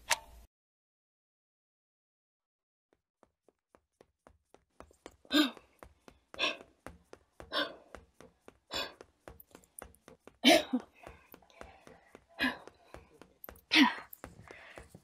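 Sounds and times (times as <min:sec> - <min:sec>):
quick running footsteps: 0:03.2 - 0:15.0
woman panting: 0:05.0 - 0:15.0.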